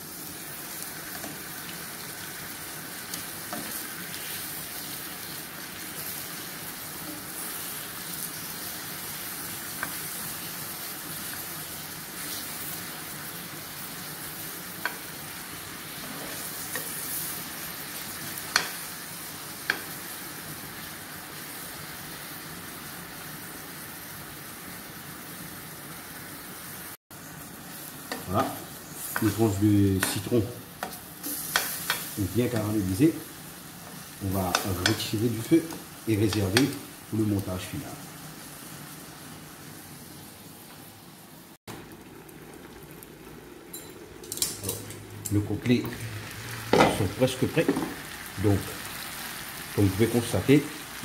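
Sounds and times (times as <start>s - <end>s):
lemon slices sizzling in a pan: 0.0s - 51.0s
metal tongs clicking against pan: 30.0s - 32.7s, 34.5s - 35.0s, 43.7s - 45.4s.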